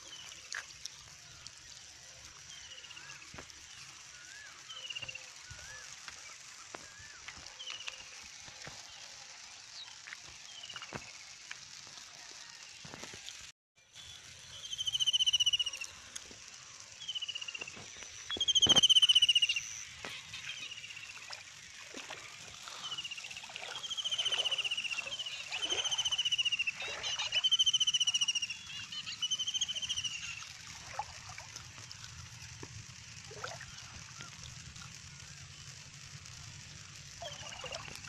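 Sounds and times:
feet wading through shallow water: 0:20.4 - 0:27.7, 0:30.2 - 0:35.0, 0:37.2 - 0:38.0.

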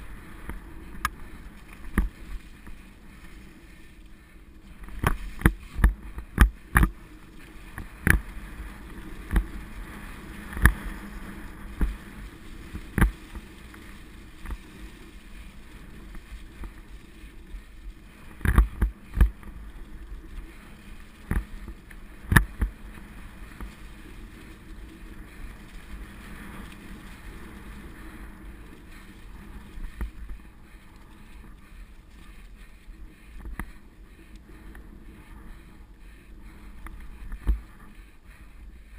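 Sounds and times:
bike tyres rushing on dirt: 0:00.0 - 0:38.9.

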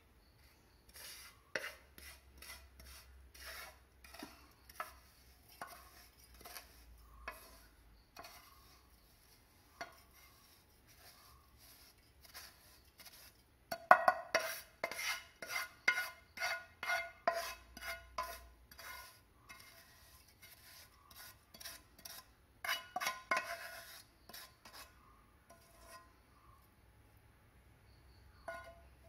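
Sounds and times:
spatula scraping a pan: 0:00.2 - 0:26.3, 0:28.4 - 0:29.0
spatula knocking on metal: 0:13.7 - 0:15.0, 0:28.5 - 0:28.8.

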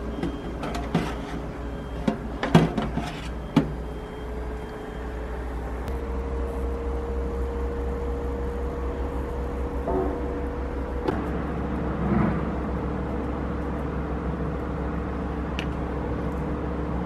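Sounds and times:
oven humming: 0:00.0 - 0:17.0
metal tray scraping on wire rack: 0:02.9 - 0:03.3.

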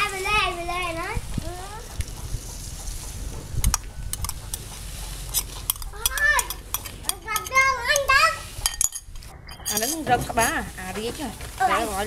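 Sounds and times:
metal spoon scraping ceramic bowl: 0:05.3 - 0:10.7.

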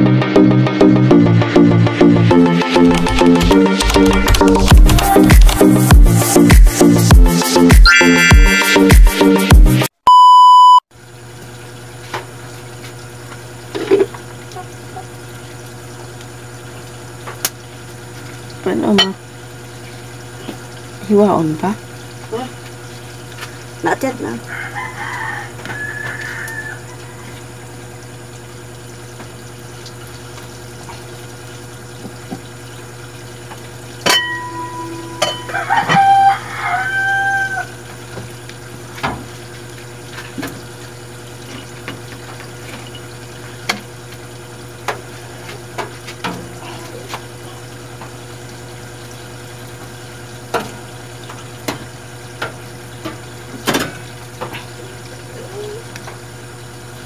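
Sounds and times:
rooster crowing: 0:24.4 - 0:27.8, 0:34.9 - 0:37.8.

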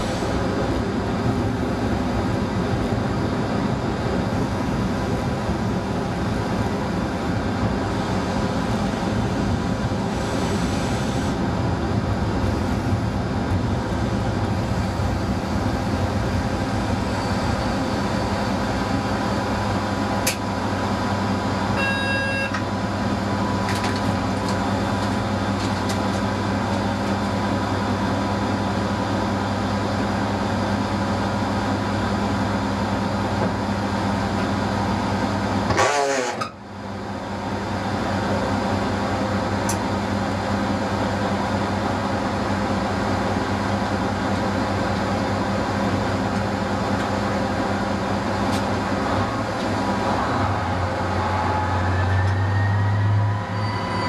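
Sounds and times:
short electronic beep: 0:21.8 - 0:22.6.

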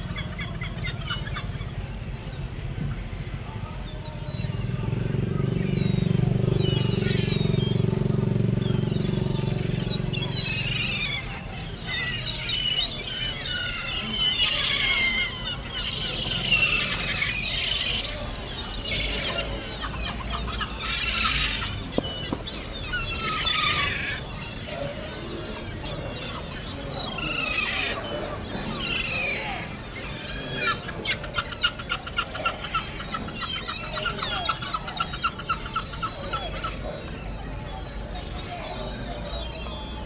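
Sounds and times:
gulls calling: 0:00.0 - 0:40.0
motor engine running: 0:01.5 - 0:12.9.

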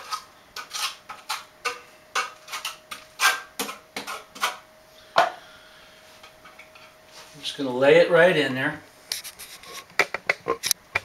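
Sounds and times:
trowel scraping on tile: 0:00.0 - 0:04.6.

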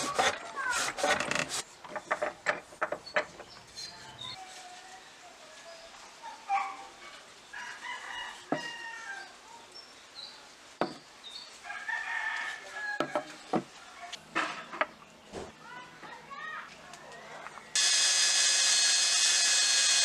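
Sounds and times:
rooster crowing: 0:07.6 - 0:09.3, 0:11.7 - 0:13.3.

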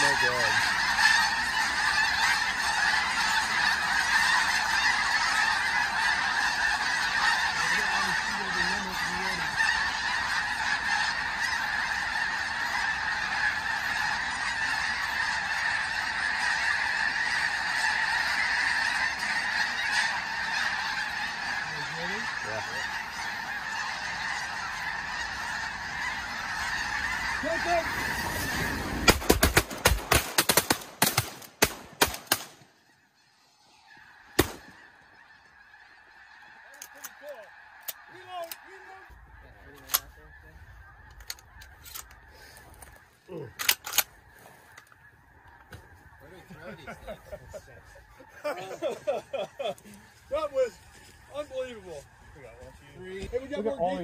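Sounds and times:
geese honking: 0:00.0 - 0:54.0
shotgun blasts: 0:29.1 - 0:32.6, 0:34.4 - 0:34.7.

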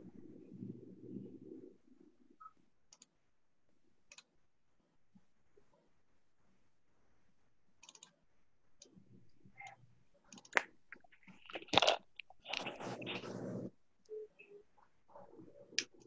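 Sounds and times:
small clicks: 0:02.4 - 0:03.2, 0:04.1 - 0:04.4, 0:07.8 - 0:08.2, 0:08.8 - 0:12.7
rustling: 0:04.6 - 0:13.8.

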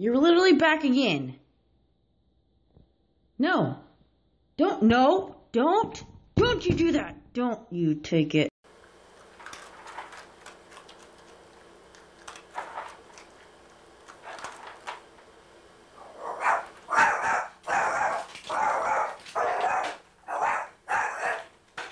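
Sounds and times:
dog barking: 0:16.0 - 0:21.5.

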